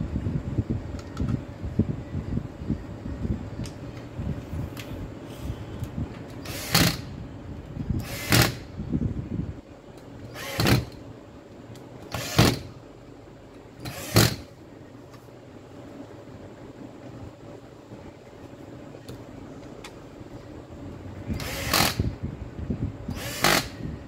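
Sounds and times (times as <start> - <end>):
cordless drill driving screws: 6.4 - 7.1, 8.0 - 8.6, 10.3 - 11.0, 12.1 - 12.7, 13.8 - 14.4, 21.4 - 22.0, 23.1 - 23.8.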